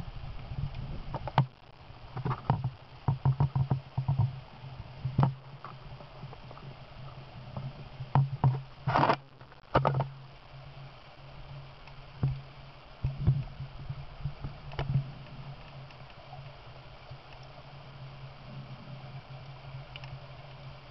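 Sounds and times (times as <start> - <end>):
steady low underwater hum: 0.0 - 20.9
underwater clicks and knocks: 0.7 - 6.7, 7.5 - 10.2, 11.8 - 16.2.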